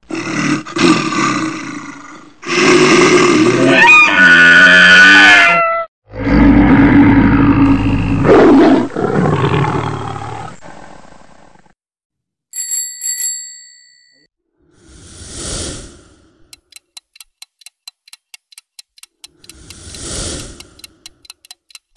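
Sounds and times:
big cat roar: 0:00.0 - 0:11.7
cartoon animal call sliding pitch: 0:03.6 - 0:05.9
small bell ringing: 0:12.5 - 0:14.3.

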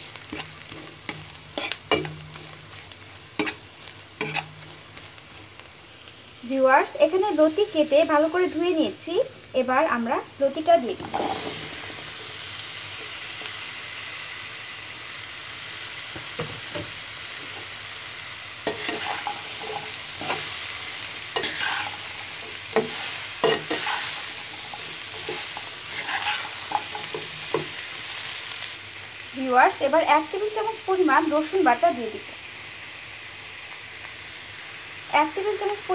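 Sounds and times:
metal spatula scraping a wok: 0:00.0 - 0:05.5, 0:11.0 - 0:13.6, 0:18.6 - 0:28.2
food sizzling in hot oil: 0:00.0 - 0:35.9.

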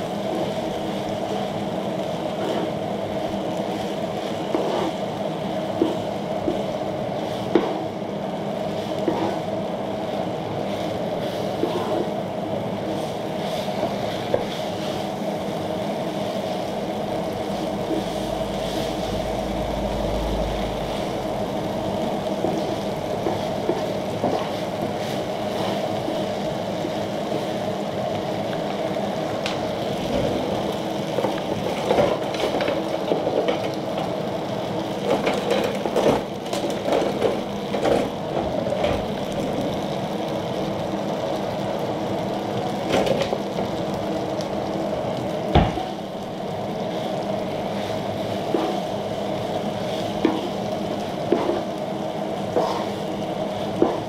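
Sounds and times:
shrimp and noodles sizzling on griddle: 0:00.0 - 0:54.0
spatula and tongs scraping griddle: 0:04.5 - 0:05.0, 0:09.0 - 0:09.5, 0:11.3 - 0:12.1, 0:52.6 - 0:53.0.

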